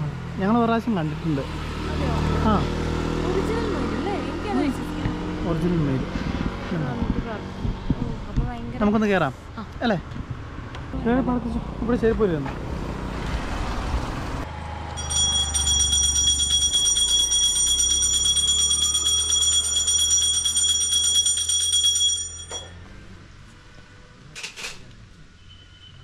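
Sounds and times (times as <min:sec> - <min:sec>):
bell ringing rapidly: 0:15.0 - 0:22.8.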